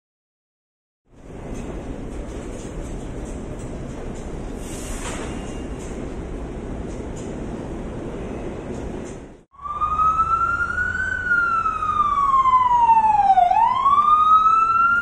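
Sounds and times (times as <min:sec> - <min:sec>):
subway station rumble: 0:01.1 - 0:09.8
emergency siren wailing: 0:09.5 - 0:15.0.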